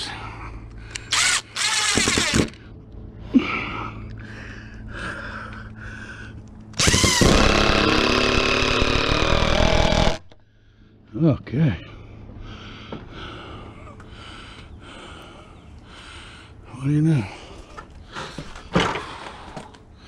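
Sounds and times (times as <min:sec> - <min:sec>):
power drill boring through wood: 0:01.1 - 0:02.6, 0:06.8 - 0:10.3.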